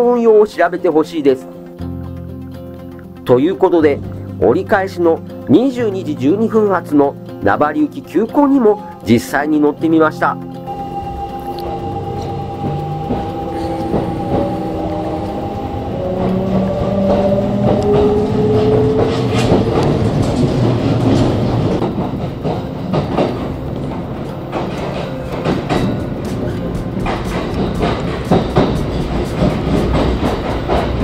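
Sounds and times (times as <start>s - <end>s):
train motor whine: 10.5s - 31.0s
train running rumble: 10.7s - 31.0s
wheels clattering over rail joints: 11.8s - 31.0s.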